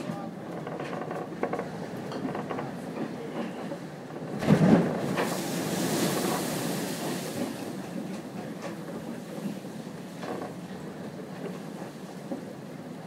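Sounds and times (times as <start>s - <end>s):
wind and rough sea rushing: 1.2s - 13.0s
wave splash: 4.3s - 10.2s.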